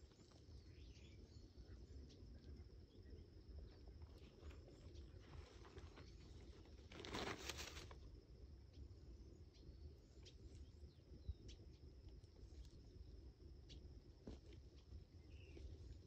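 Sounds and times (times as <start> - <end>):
rustle of dry leaves and grass: 4.0 - 8.1.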